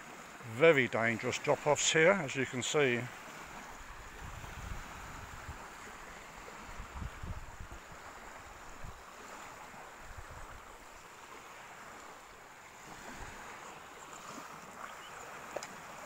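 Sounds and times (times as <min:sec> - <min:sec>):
small waves washing on shore: 0:00.0 - 0:16.0
wind buffeting microphone: 0:03.6 - 0:09.0.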